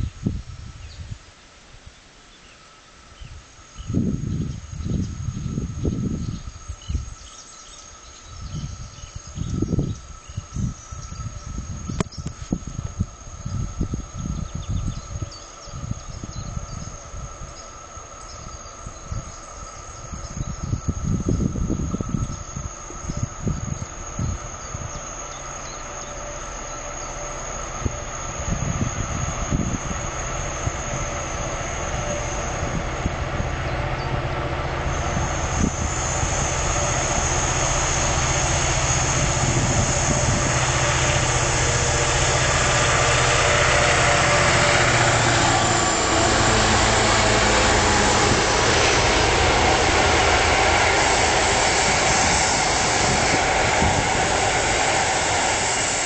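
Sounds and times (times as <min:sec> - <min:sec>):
wind buffeting microphone: 0:00.0 - 0:01.3, 0:03.2 - 0:26.0, 0:27.0 - 0:56.0
diesel locomotive engines droning: 0:00.0 - 0:56.0
train wagons rumbling past: 0:12.8 - 0:56.0.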